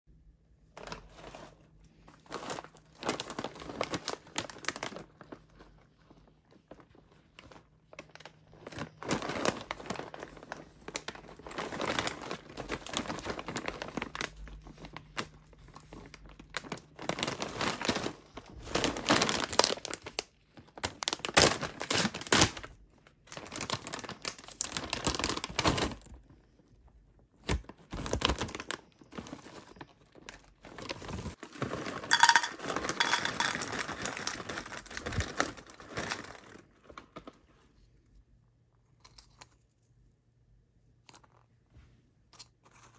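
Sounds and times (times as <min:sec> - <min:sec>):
plastic bag crinkling: 0:00.8 - 0:26.1, 0:27.5 - 0:37.6
cereal poured into glass bowl: 0:32.0 - 0:34.4.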